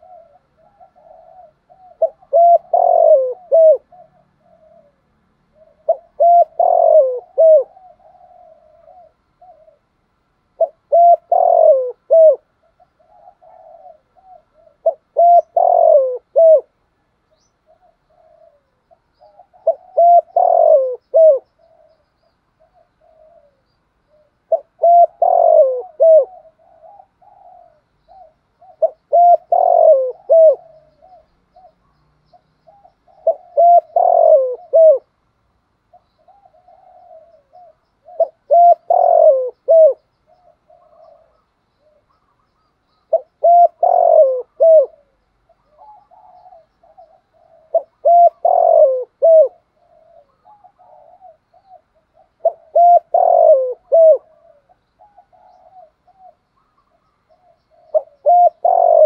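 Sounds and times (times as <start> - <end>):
dove cooing: 0.0 - 35.2, 35.8 - 59.0.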